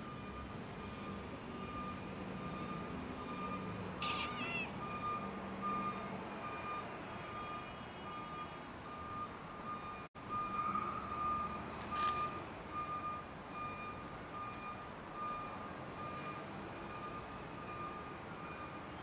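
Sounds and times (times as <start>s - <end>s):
reversing alarm beeping: 0.0s - 19.0s
low engine hum: 9.8s - 18.6s.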